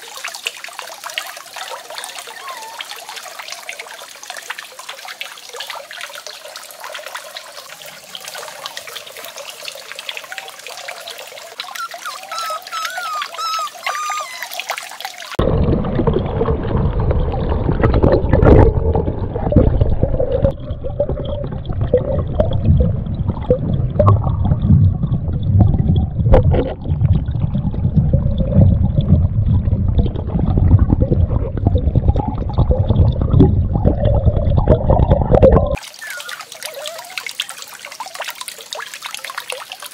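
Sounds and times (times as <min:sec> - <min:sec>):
water trickling into pond: 0:00.0 - 0:39.9
muffled underwater rumble and bubbling: 0:15.4 - 0:35.8.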